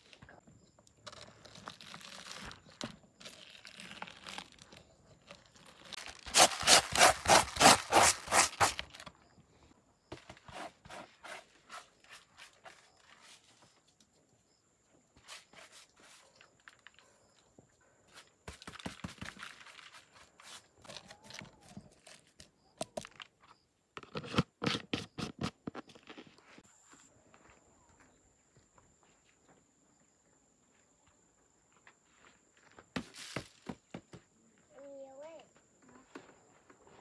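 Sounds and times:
scratchy handling of plastic jar: 0:01.1 - 0:09.1, 0:18.1 - 0:26.6
salt scraping plastic colander: 0:05.6 - 0:09.1, 0:18.5 - 0:22.3, 0:24.0 - 0:26.6.

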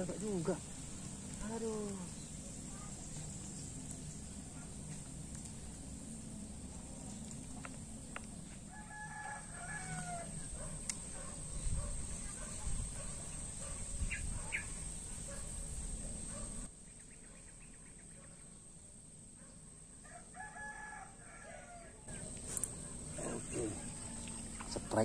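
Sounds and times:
rooster crowing: 0:08.7 - 0:10.5, 0:20.0 - 0:22.2.

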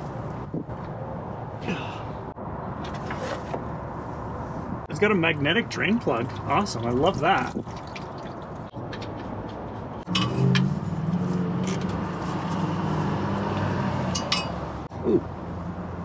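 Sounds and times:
vehicle engine humming: 0:08.4 - 0:16.0.

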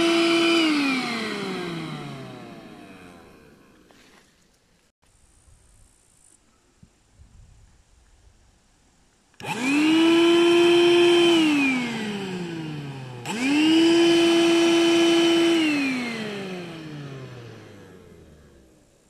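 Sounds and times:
vacuum cleaner motor whining: 0:00.0 - 0:04.1, 0:09.4 - 0:19.0.

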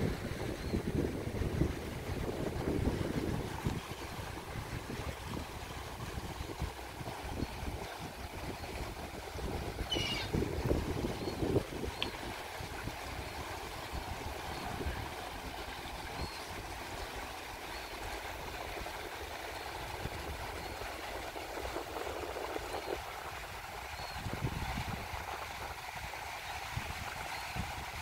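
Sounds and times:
small waves lapping: 0:00.0 - 0:28.0
wind rumbling on microphone: 0:00.0 - 0:28.0.

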